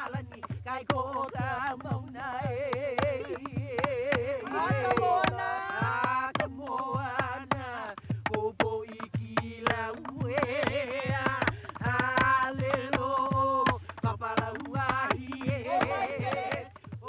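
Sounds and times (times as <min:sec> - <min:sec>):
percussion beats: 0:00.0 - 0:17.0
person chanting: 0:03.0 - 0:07.5, 0:09.8 - 0:16.7.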